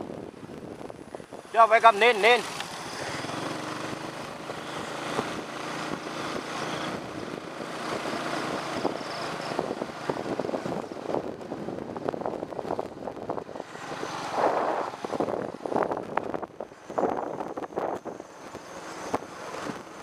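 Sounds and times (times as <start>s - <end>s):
wind on microphone: 0.0s - 2.4s, 3.2s - 20.0s
small motorbike engine running: 1.4s - 20.0s.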